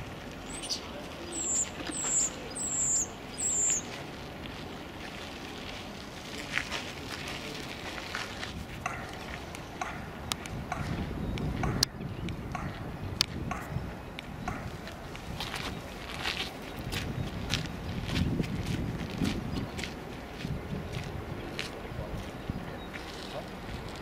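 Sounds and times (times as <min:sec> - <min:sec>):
birds chirping: 0:00.0 - 0:04.1, 0:08.8 - 0:18.1, 0:21.4 - 0:23.7.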